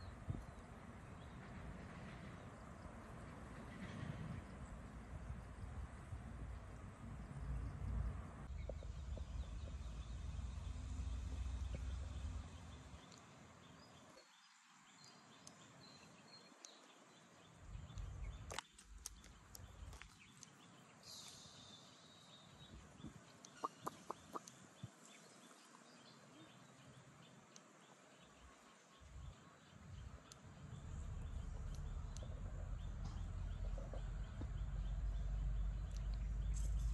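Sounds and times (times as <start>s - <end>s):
low rumble: 2.9s - 13.1s, 29.1s - 36.9s
faint bird calls: 23.4s - 26.7s.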